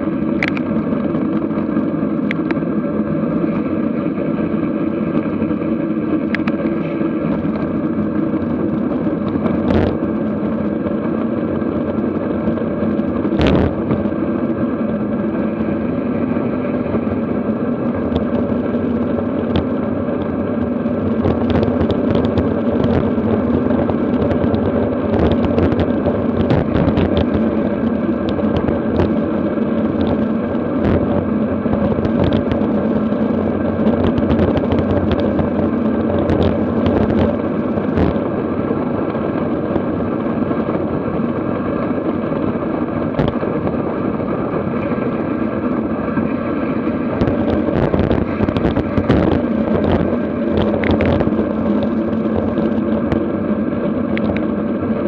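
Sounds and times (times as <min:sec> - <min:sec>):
wind rushing over microphone: 0:00.0 - 0:55.0
tyre noise on asphalt: 0:16.8 - 0:54.6.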